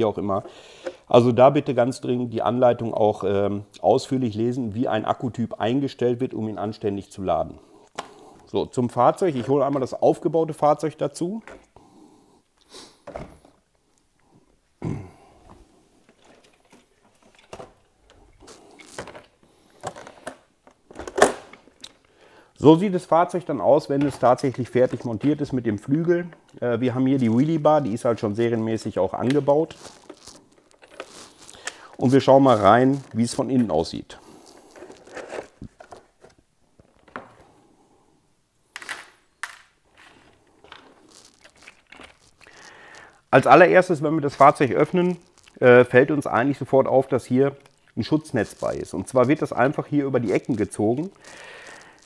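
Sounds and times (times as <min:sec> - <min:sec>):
plastic shell rustling: 0:16.0 - 0:22.0, 0:23.0 - 0:37.6, 0:38.7 - 0:43.5, 0:44.1 - 0:52.0.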